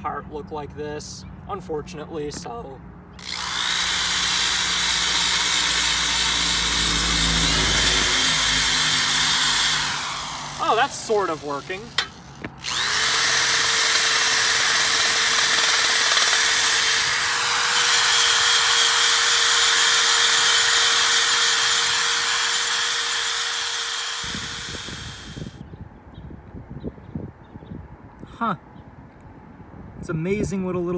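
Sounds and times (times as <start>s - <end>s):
electric drill motor whine: 3.2s - 25.6s.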